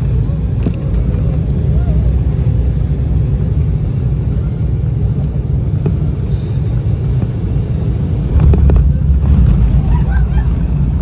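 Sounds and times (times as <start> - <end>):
airflow noise: 0.0 - 11.0
airliner cabin engine rumble: 0.0 - 11.0.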